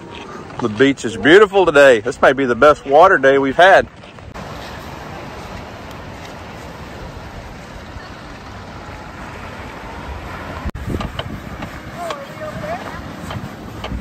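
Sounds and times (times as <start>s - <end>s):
wind rumbling on microphone: 3.8s - 14.0s
surf washing: 4.4s - 14.0s.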